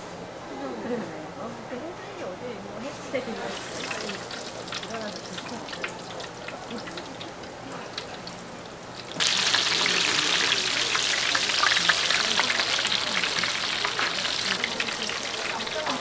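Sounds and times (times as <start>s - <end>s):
food deep-frying in oil: 3.0s - 16.0s.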